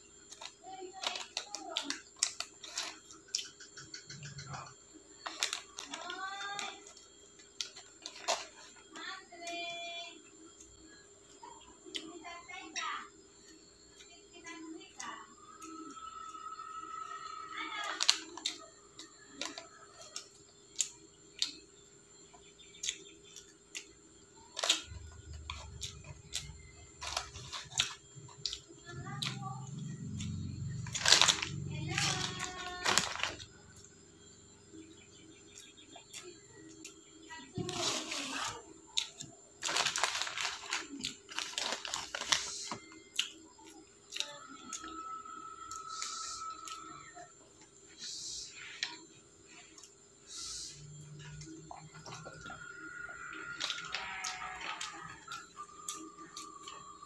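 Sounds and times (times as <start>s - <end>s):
fries crunching: 0.1s - 3.6s, 5.2s - 9.6s, 24.5s - 33.8s, 37.6s - 44.9s
paper bag crinkling: 30.9s - 33.4s, 39.6s - 42.7s.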